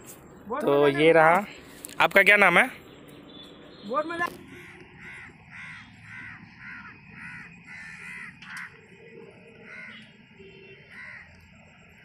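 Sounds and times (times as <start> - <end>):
crows cawing: 4.3 - 11.7.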